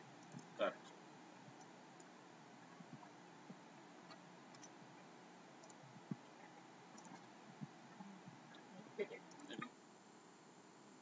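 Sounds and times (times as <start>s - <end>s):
faint computer mouse clicks: 4.5s - 4.8s, 5.6s - 6.3s, 6.9s - 7.3s.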